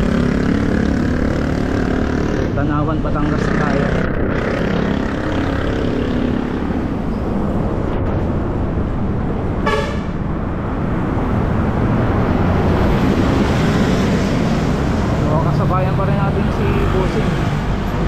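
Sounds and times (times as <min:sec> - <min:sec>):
road traffic: 0:00.0 - 0:18.0
wind rumble: 0:03.8 - 0:15.7
vehicle horn honk: 0:09.6 - 0:10.2.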